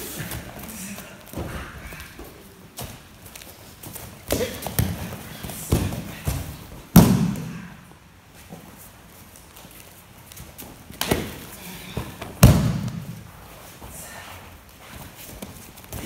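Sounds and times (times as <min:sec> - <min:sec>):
bodies thudding on a mat: 0:03.8 - 0:07.7, 0:10.9 - 0:13.3.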